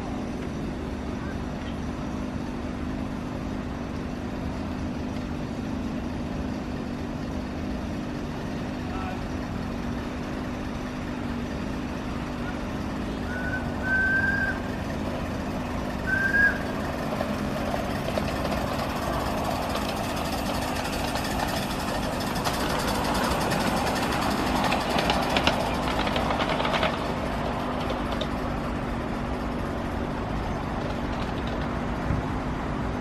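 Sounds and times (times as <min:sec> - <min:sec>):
steam locomotive running: 0:08.6 - 0:32.0
steam locomotive whistle toots: 0:13.2 - 0:14.7, 0:16.0 - 0:16.8.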